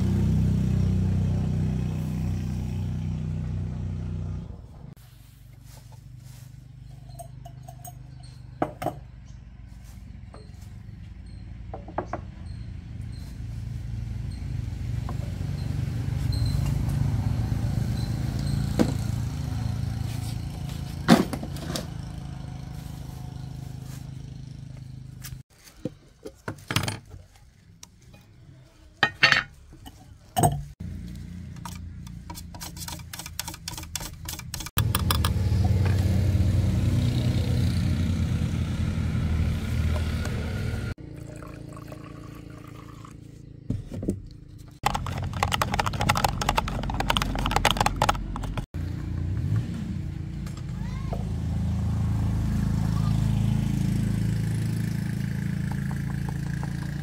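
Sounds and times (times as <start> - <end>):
metal parts tapping on wood: 44.8 - 48.6.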